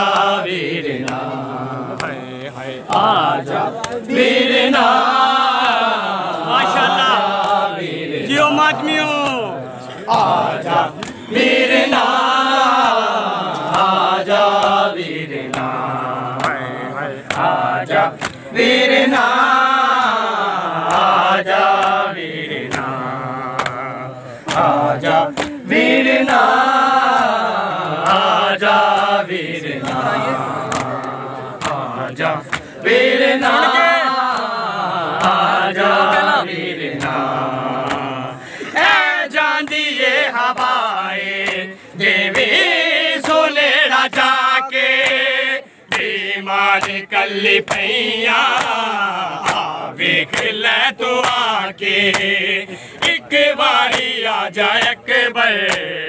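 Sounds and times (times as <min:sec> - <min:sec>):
men chanting together: 0:00.0 - 0:56.0
chest-beating slaps: 0:09.2 - 0:11.3, 0:15.5 - 0:18.5, 0:22.6 - 0:25.7, 0:29.8 - 0:32.7, 0:36.9 - 0:38.1, 0:47.6 - 0:47.9, 0:49.4 - 0:50.5, 0:52.1 - 0:53.3.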